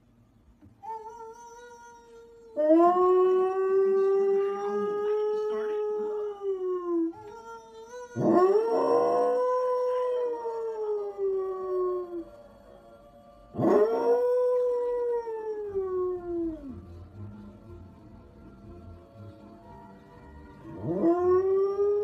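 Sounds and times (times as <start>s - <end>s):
dog howling: 0.9s - 12.4s, 13.5s - 16.8s.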